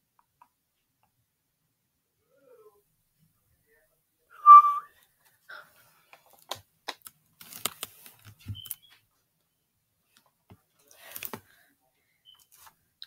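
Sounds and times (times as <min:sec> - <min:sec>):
sharp whistle-like tone: 0:04.4 - 0:04.9.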